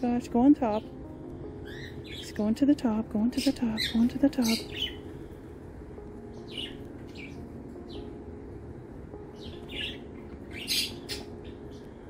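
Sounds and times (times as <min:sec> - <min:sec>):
budgerigars chirping: 0:01.6 - 0:02.3, 0:03.4 - 0:05.0, 0:06.4 - 0:08.1, 0:09.4 - 0:11.9.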